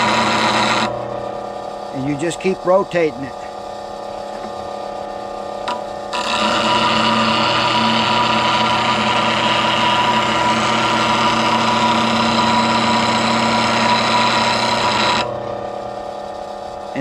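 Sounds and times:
steel grinding on stone wheel: 0.0 - 0.9, 6.1 - 15.3
bench grinder motor hum: 0.0 - 17.0.

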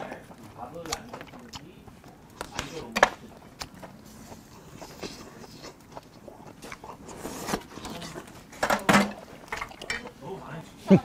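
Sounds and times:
oyster shells and utensils clicking: 8.6 - 10.2.

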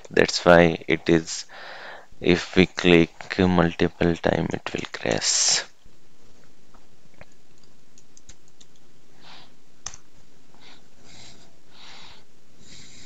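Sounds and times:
keyboard and mouse clicks: 7.2 - 8.8.

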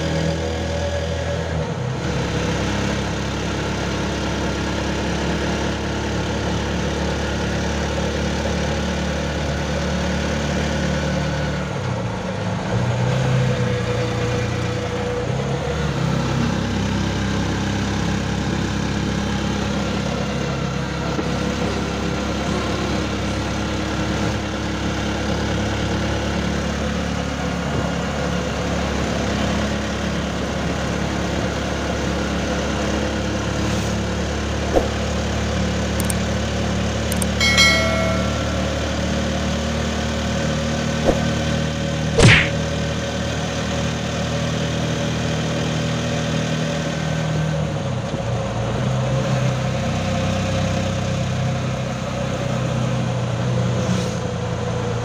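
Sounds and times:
road noise: 0.0 - 55.0
vehicle engine running: 0.0 - 55.0
short high beep: 37.3 - 39.3
sharp knock: 42.2 - 42.6.

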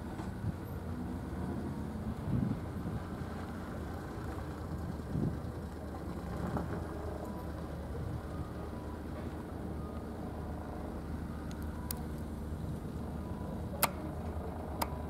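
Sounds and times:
low outdoor rumble: 0.0 - 15.0
sharp clicks: 13.8 - 14.1.

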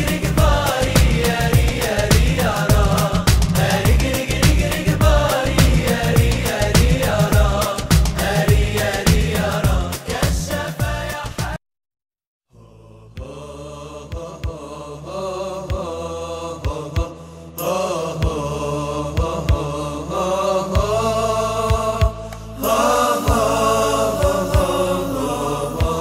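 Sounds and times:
regular beat: 0.0 - 11.6, 20.8 - 26.0
person singing: 20.1 - 26.0.

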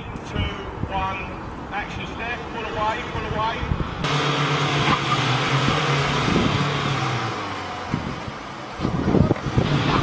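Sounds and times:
pickup truck engine droning: 3.7 - 10.0.

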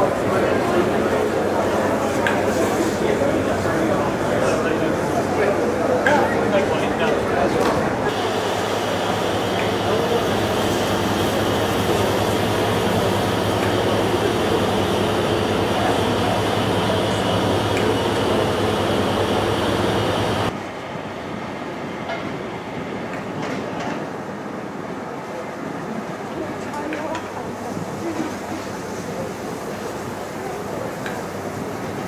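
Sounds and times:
steam locomotive hiss: 8.1 - 20.5.

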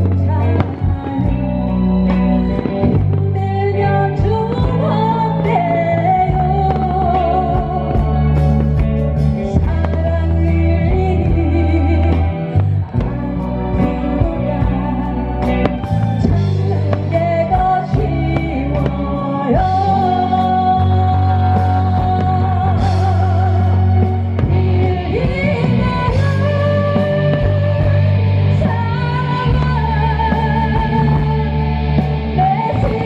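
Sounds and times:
pop-rock band playing: 0.0 - 33.0
woman singing: 0.0 - 33.0.

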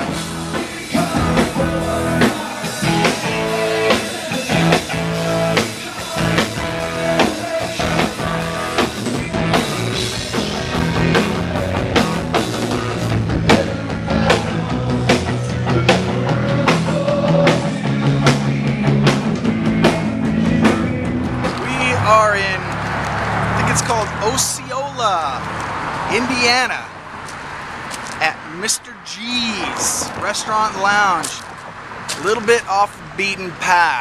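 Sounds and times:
rock band playing live: 0.0 - 22.9.

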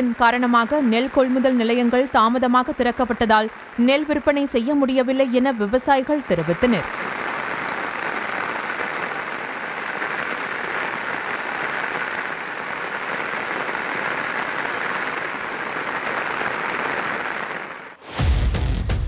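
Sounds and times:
heavy rain on wet road: 0.0 - 18.0.

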